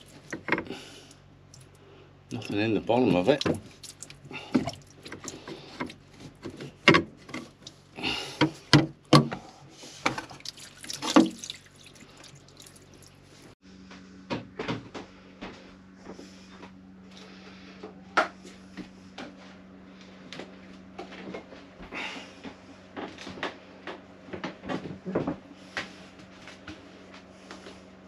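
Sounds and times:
faint steady hum: 0.0 - 28.0
water pouring: 10.3 - 13.5.

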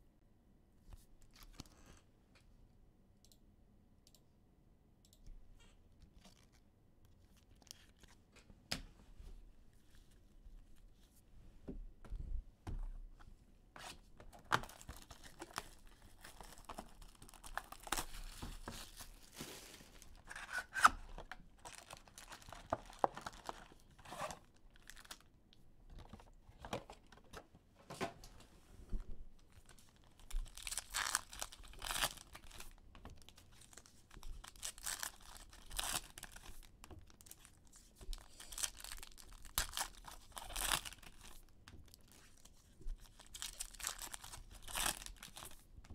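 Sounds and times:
wrappers tearing and crinkling: 14.5 - 25.3, 29.6 - 45.6.

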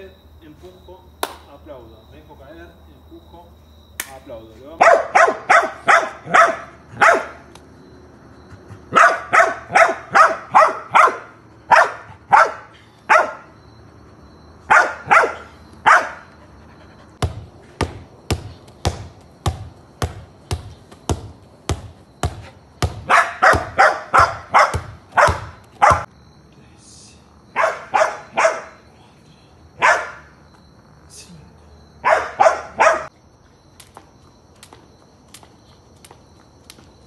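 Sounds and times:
dog barking: 4.8 - 7.4, 8.9 - 13.5, 14.7 - 16.4, 23.0 - 26.1, 27.5 - 28.8, 29.8 - 30.3, 32.0 - 33.1.

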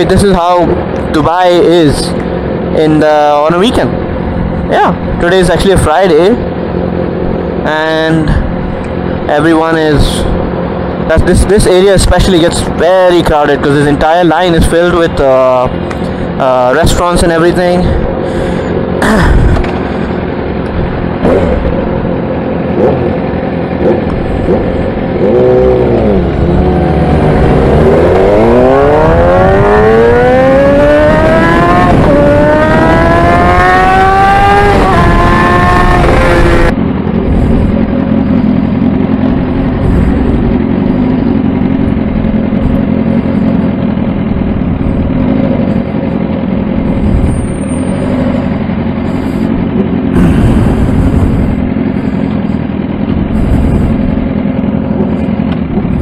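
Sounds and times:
motorbike engine accelerating: 0.0 - 56.0
wind rush: 24.2 - 41.1, 46.9 - 47.7, 50.1 - 52.2, 53.0 - 54.4.

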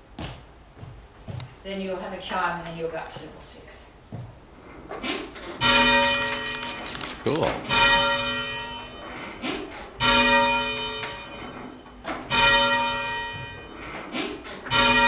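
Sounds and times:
tower bell ringing: 5.6 - 6.9, 7.6 - 9.4, 10.0 - 14.0, 14.6 - 15.0.

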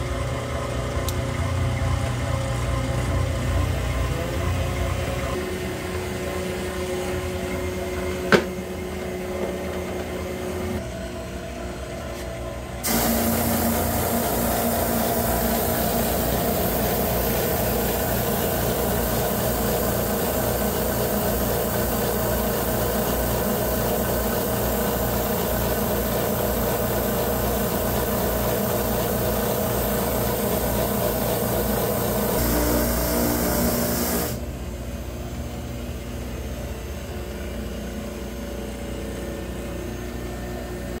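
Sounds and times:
drum sander hissing on wood: 12.8 - 34.4
sander machine running: 12.8 - 34.5.

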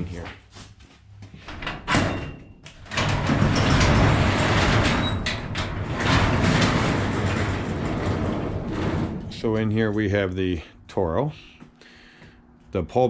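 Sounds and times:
shed door rumbling along track: 1.5 - 11.3.

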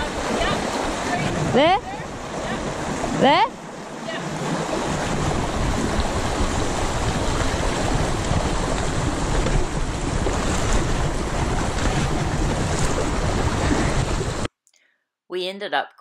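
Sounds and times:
river rushing over stones: 0.0 - 14.5.

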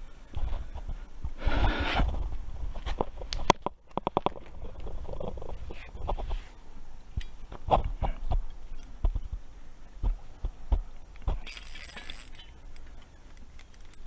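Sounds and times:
rustling clatter: 11.3 - 14.0.

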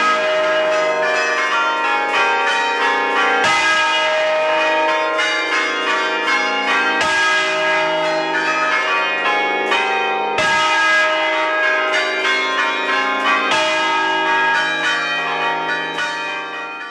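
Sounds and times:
church bells pealing: 0.0 - 16.9.

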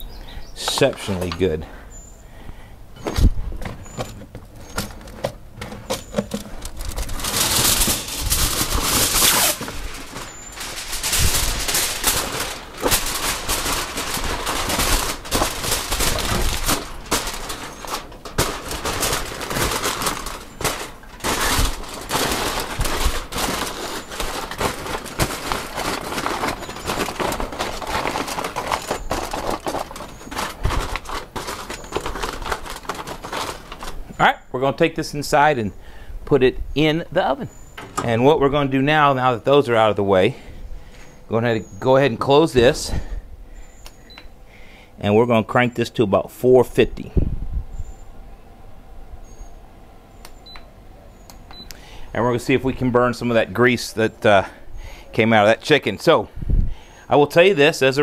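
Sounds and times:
aluminum foil crinkling: 4.6 - 34.1.

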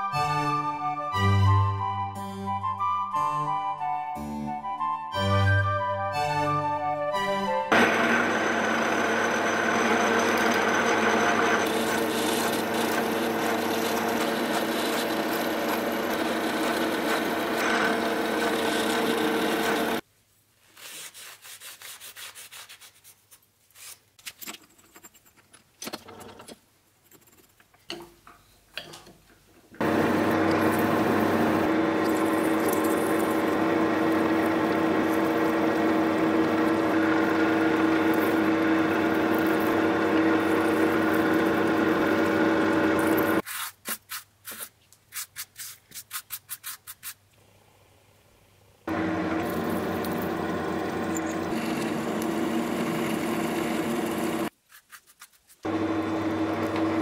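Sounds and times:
milling machine drilling metal: 7.7 - 20.0, 29.8 - 43.4, 48.9 - 54.5.

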